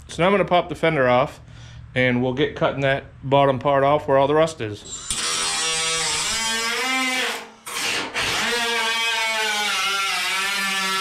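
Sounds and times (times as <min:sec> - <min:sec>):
power tool motor whining: 0:04.8 - 0:11.0.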